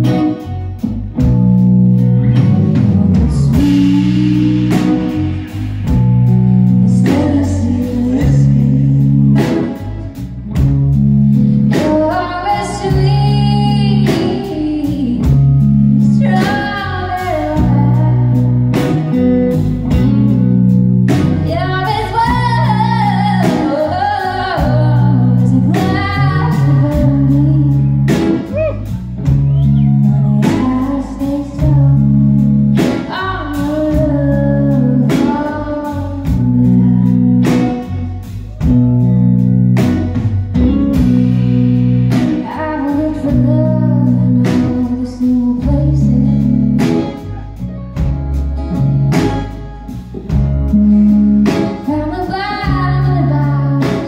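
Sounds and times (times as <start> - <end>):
drums: 0.0 - 54.0
guitars: 0.0 - 54.0
woman singing: 2.2 - 10.0, 11.7 - 19.3, 21.1 - 38.7, 42.1 - 47.4, 51.4 - 54.0.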